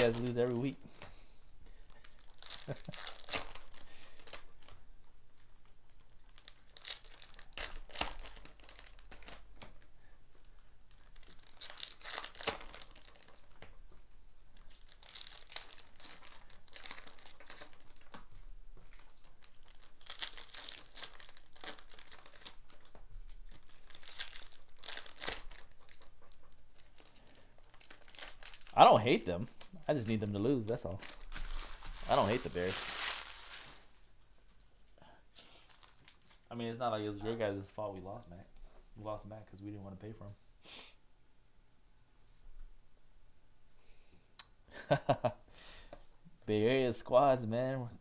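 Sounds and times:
foil wrappers tearing and crinkling: 0:00.0 - 0:00.7, 0:01.9 - 0:04.8, 0:06.0 - 0:09.5, 0:10.9 - 0:13.6, 0:14.6 - 0:18.2, 0:18.9 - 0:34.0, 0:35.5 - 0:36.5.

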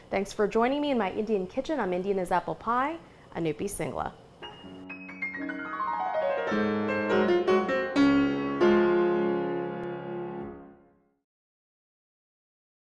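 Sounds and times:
piano jingle: 0:04.4 - 0:11.0.

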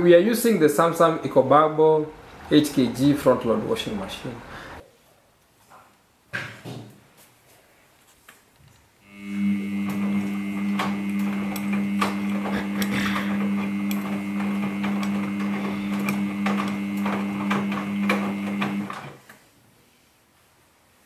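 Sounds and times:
washing machine motor hum: 0:09.0 - 0:19.2.

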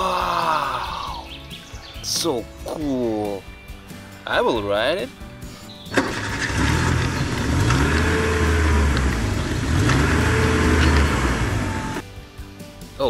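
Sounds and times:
car engine revving: 0:06.0 - 0:12.0.

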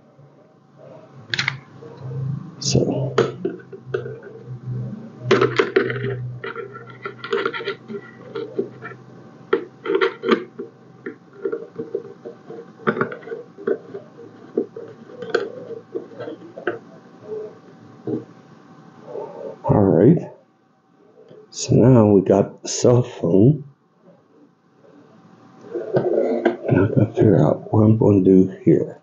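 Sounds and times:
plastic parts clicking and rattling: 0:09.5 - 0:16.8.

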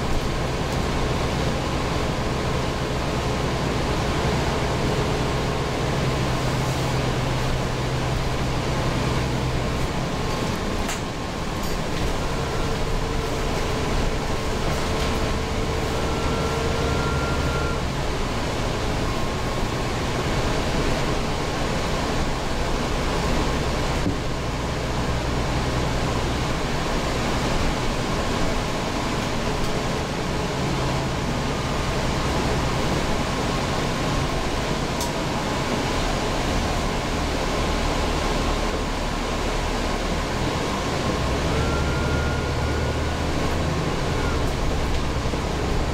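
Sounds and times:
bus diesel engine drone: 0:00.0 - 0:45.9
road noise: 0:00.0 - 0:45.9
faint steady whine: 0:11.1 - 0:24.4.

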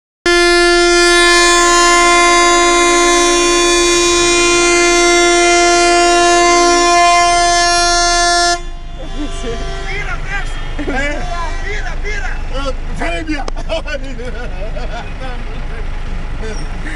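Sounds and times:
vehicle horn long blast: 0:00.2 - 0:12.6.

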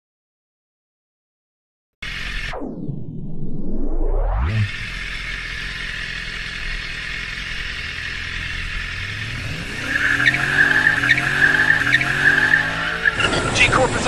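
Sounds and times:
car engine revving: 0:02.0 - 0:03.1, 0:03.8 - 0:14.0
car tyres squealing: 0:04.7 - 0:14.0.

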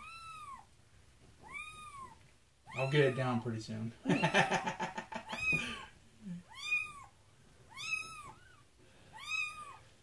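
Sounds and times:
kitten mewing: 0:05.2 - 0:07.1.

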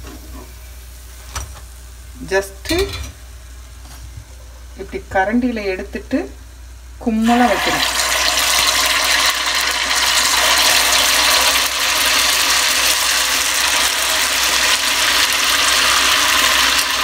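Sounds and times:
batter sizzling in hot oil: 0:07.2 - 0:17.0.

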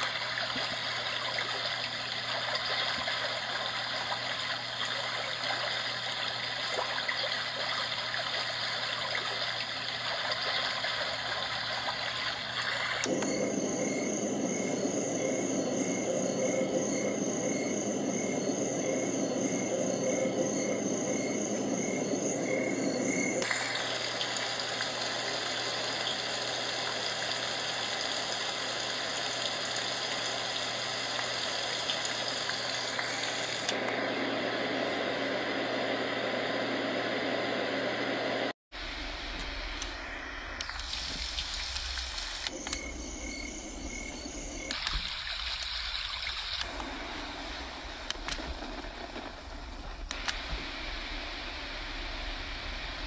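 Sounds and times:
steady hiss from small speaker: 0:00.0 - 0:45.6
pulsing chirp over steady noise: 0:00.0 - 0:53.0
deep full noise: 0:13.1 - 0:24.0.

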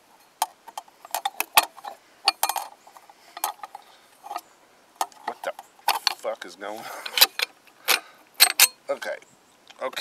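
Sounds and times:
metal clicks and clinks: 0:00.4 - 0:06.2, 0:07.0 - 0:08.8.

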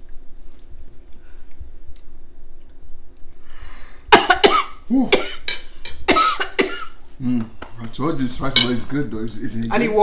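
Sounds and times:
woman coughing hard: 0:04.1 - 0:05.5, 0:06.1 - 0:07.0.

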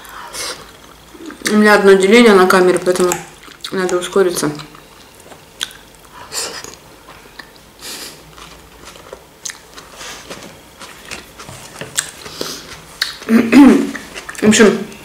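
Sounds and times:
chewing with wet mouth sounds: 0:02.5 - 0:13.3, 0:13.9 - 0:15.0.

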